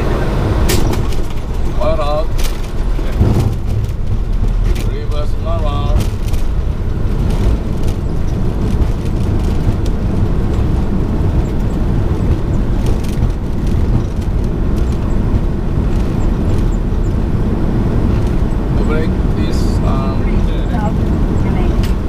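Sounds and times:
airplane engine noise: 0:00.0 - 0:22.0
wheels rolling on runway: 0:00.0 - 0:22.0.

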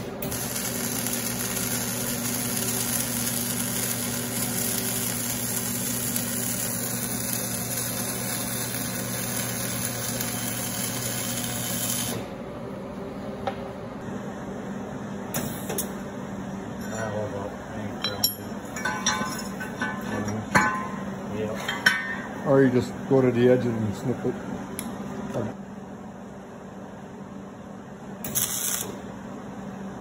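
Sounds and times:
welding arc crackling: 0:00.0 - 0:12.3, 0:28.2 - 0:29.0
low steady hum: 0:00.0 - 0:30.0.

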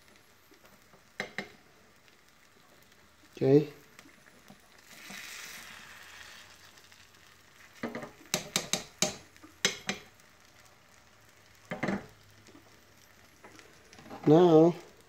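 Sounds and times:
egg whites sizzling in a pan: 0:00.0 - 0:15.0
fork tapping a pan: 0:01.2 - 0:01.6, 0:07.8 - 0:10.1.

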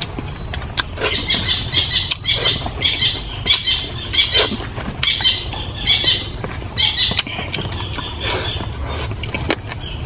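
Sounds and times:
man chewing and lip smacking: 0:00.0 - 0:10.0.

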